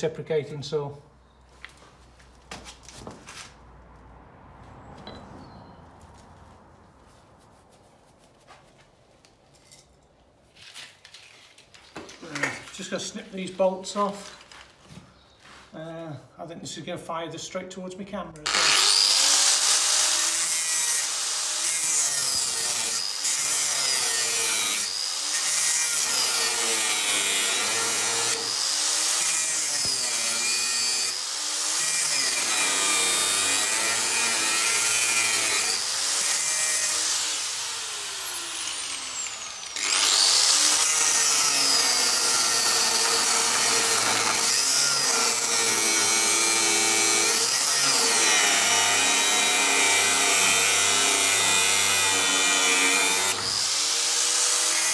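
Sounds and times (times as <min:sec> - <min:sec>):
angle grinder cutting steel: 0:18.4 - 0:54.9.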